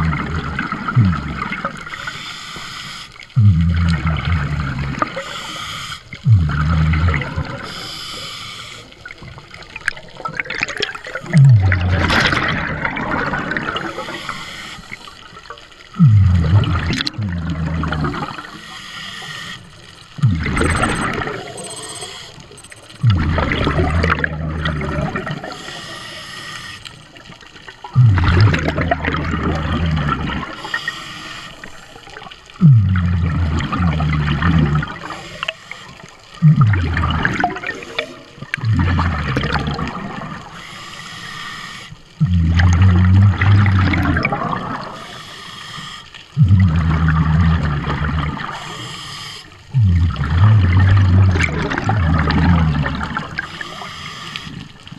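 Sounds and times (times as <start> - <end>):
exhaled bubbles gurgling: 0.0 - 54.9
diver breathing through regulator: 1.1 - 9.1, 13.8 - 15.4, 16.0 - 24.4, 25.2 - 27.0, 30.4 - 33.7, 40.5 - 42.4, 44.8 - 51.0, 52.8 - 54.8.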